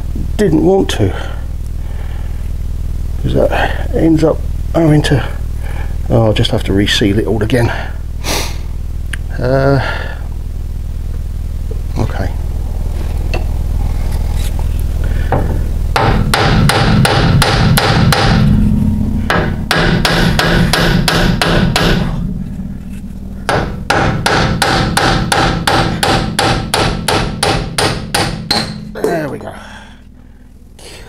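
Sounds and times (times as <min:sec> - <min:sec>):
steady low hum: 0:00.0 - 0:31.0
hammer striking metal: 0:15.3 - 0:18.5, 0:19.2 - 0:22.2, 0:23.5 - 0:29.5.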